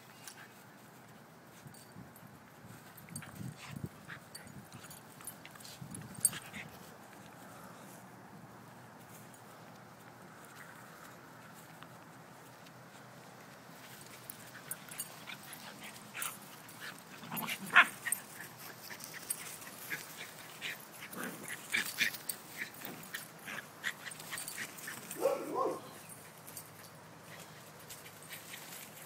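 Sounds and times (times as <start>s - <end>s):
dogs scuffling: 9.0s - 29.0s
dogs yipping: 17.3s - 26.3s.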